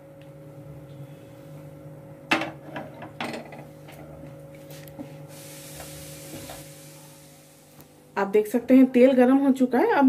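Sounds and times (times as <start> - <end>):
low steady hum: 0.0 - 10.0
steady hiss: 5.3 - 8.0.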